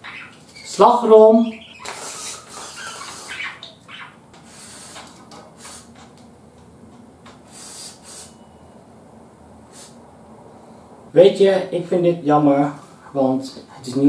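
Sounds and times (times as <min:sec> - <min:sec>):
aerosol cream hissing squirts: 0:04.4 - 0:06.0.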